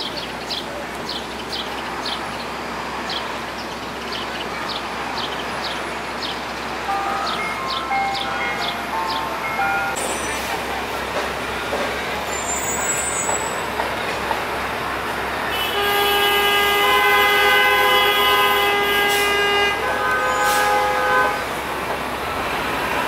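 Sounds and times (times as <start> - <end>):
city street noise: 0.0 - 23.0
ice cream truck jingle: 4.5 - 11.2.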